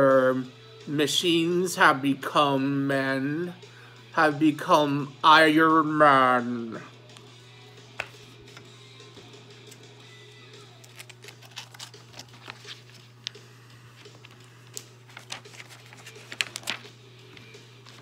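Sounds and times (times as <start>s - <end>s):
paper pages rustling: 10.8s - 18.0s.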